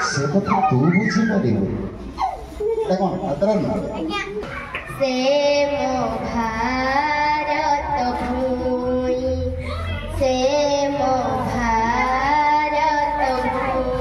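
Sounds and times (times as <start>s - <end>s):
child singing slowly: 4.9s - 14.0s.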